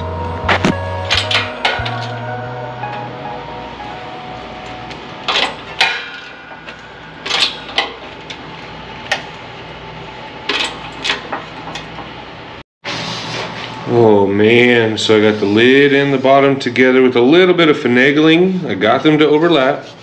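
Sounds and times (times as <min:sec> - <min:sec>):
sheet metal clanking: 0:00.5 - 0:02.3, 0:05.2 - 0:08.4.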